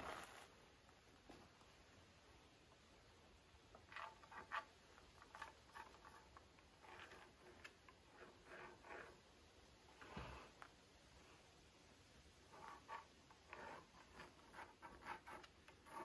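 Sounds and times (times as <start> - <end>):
tool scraping wood: 4.0 - 9.2, 12.5 - 16.0.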